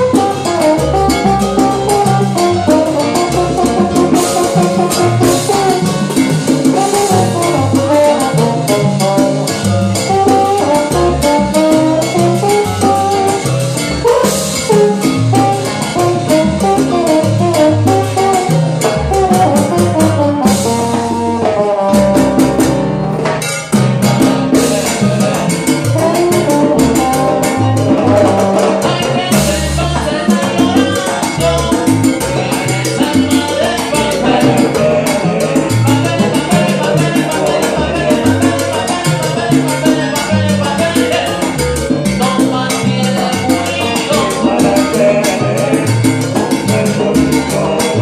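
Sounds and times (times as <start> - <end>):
congas and timbales: 0.0 - 48.0
salsa band playing: 0.0 - 48.0.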